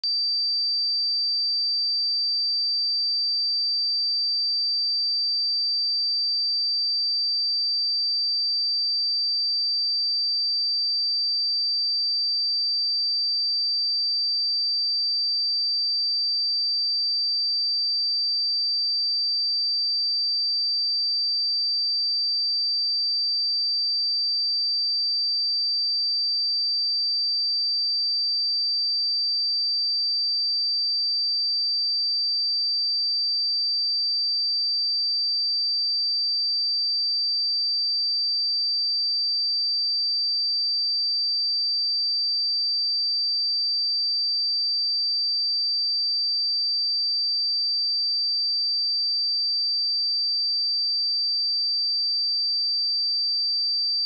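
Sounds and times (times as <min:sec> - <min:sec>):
high-pitched sine-wave test tone: 0:53.8 - 0:54.0.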